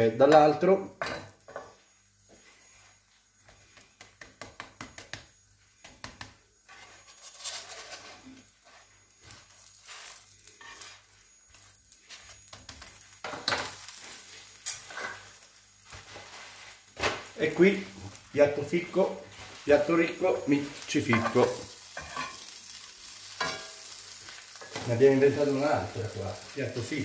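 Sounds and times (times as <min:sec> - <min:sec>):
toast sizzling in a pan: 0:00.0 - 0:27.0
spatula tapping and scraping pan: 0:03.4 - 0:09.7, 0:21.1 - 0:22.5, 0:23.4 - 0:24.0.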